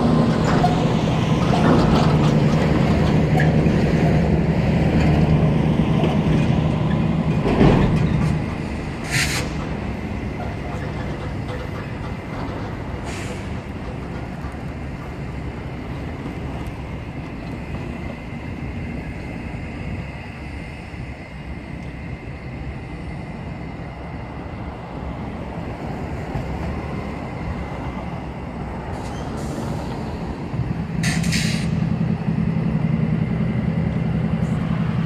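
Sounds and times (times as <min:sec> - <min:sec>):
diesel truck engine drone: 0:00.0 - 0:35.0
passing road traffic: 0:00.0 - 0:35.0
short sharp hiss: 0:09.0 - 0:09.6.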